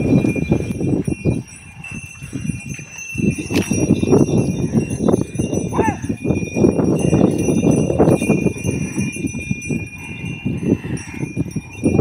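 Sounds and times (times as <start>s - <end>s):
bells jingling: 0.0s - 12.0s
hooves and plough scraping dirt: 0.0s - 12.0s.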